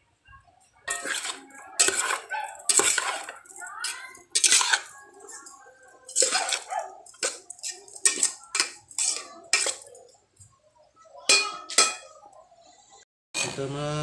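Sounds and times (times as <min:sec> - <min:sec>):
metal spoon scraping metal pot: 0:00.9 - 0:10.2, 0:11.3 - 0:12.2, 0:13.4 - 0:13.6.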